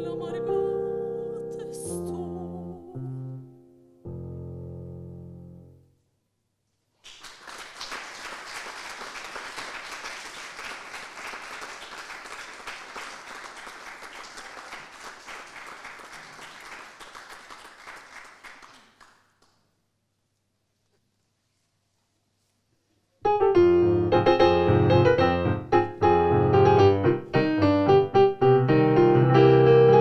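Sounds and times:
small audience applauding: 7.0 - 19.7.

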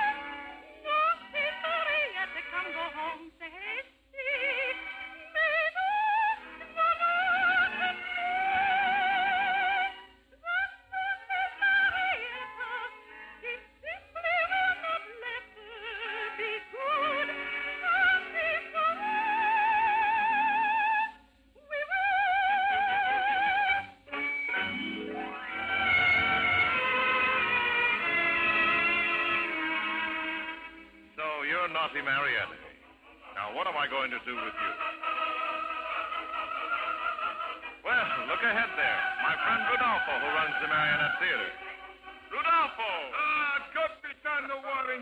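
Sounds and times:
soprano singing: 0.0 - 43.8
orchestra playing: 24.1 - 32.8.

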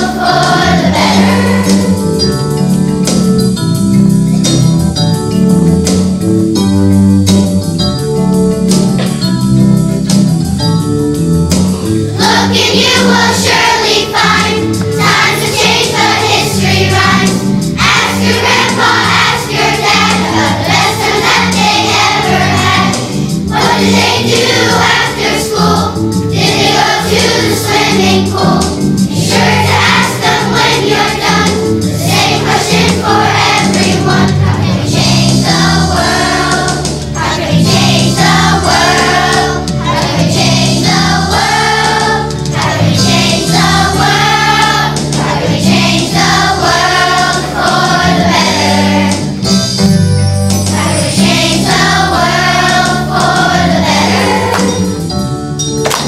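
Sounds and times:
children's choir singing: 0.0 - 2.4, 12.1 - 49.5, 50.6 - 55.2
instrumental accompaniment with bass: 0.0 - 56.0.

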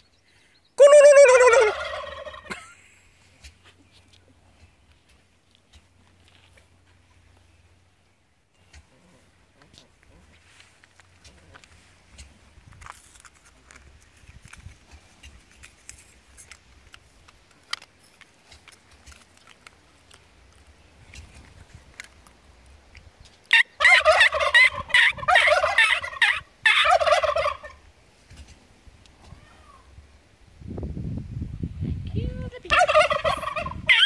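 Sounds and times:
turkeys gobbling: 0.8 - 2.7, 23.5 - 27.9, 32.7 - 34.0.

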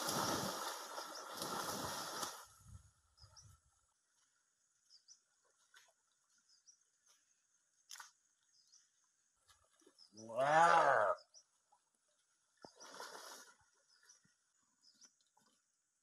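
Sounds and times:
water splashing hard: 0.0 - 2.5
soft splashes: 0.0 - 2.6, 12.5 - 14.5.

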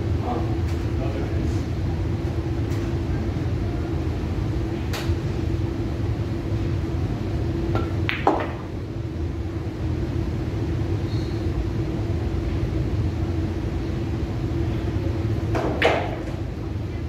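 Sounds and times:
steady hum: 0.0 - 17.0
cue striking cue ball: 7.8 - 8.7, 15.5 - 16.3
pool balls clacking: 7.8 - 8.7, 15.5 - 16.4.

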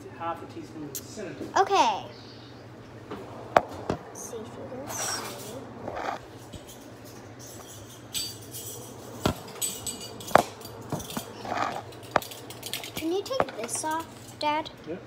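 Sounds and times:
utensils clinking on counter: 4.9 - 14.4.

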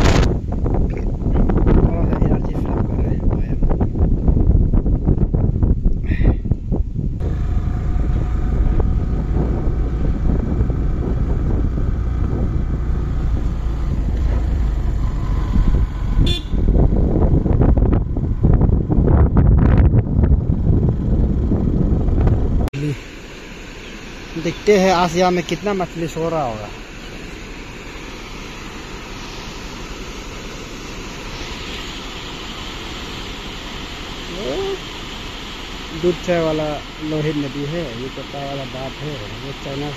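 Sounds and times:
wind buffeting microphone: 0.0 - 22.7
motorcycle engine running: 7.0 - 39.9.

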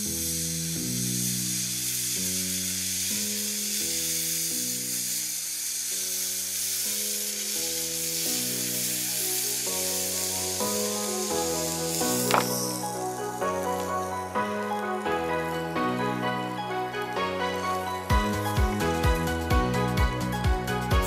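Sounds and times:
hot knife blade sizzling: 0.0 - 21.0
electronic background music: 7.6 - 21.0.

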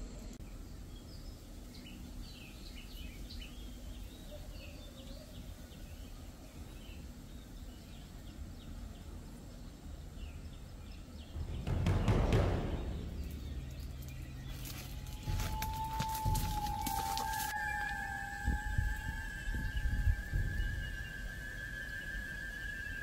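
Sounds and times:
small birds chirping: 0.0 - 23.0
low background rumble: 5.2 - 23.0.

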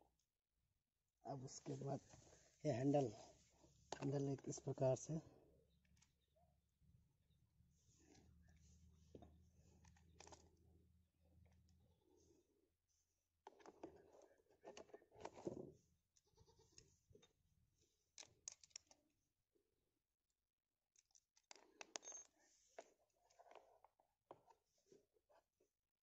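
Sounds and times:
faint plastic clicks and clatter: 8.0 - 10.8, 13.4 - 17.4, 18.1 - 19.1, 20.9 - 25.6.

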